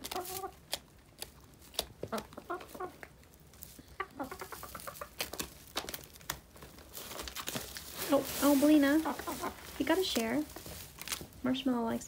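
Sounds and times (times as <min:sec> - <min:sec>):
hens clucking: 0:00.0 - 0:00.8, 0:01.9 - 0:05.8, 0:08.0 - 0:10.8.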